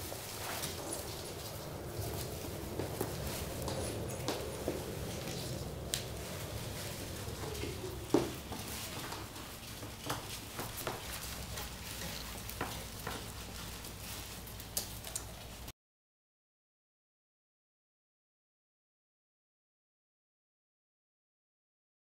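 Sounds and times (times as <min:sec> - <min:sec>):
paper strips rustling: 0:00.0 - 0:15.7.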